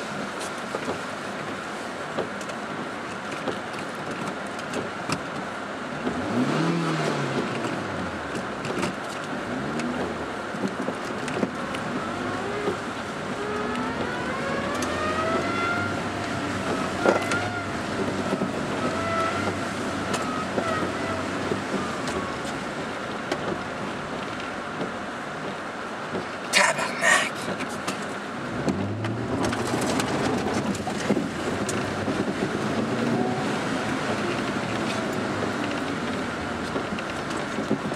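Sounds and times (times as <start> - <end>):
rain ticking on car: 0.0 - 37.9
road and rain noise in car: 0.0 - 37.9
car engine revving: 6.1 - 8.5, 11.4 - 22.8, 28.4 - 36.9.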